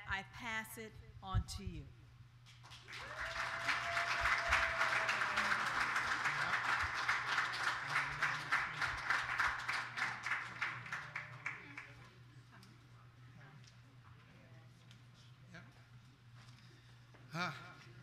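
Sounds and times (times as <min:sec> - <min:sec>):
audience applauding: 0:02.6 - 0:12.0.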